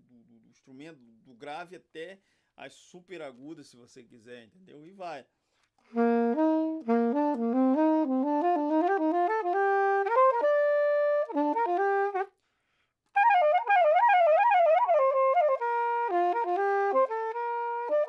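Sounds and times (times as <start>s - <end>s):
soprano saxophone playing: 5.8s - 12.4s, 13.2s - 18.0s.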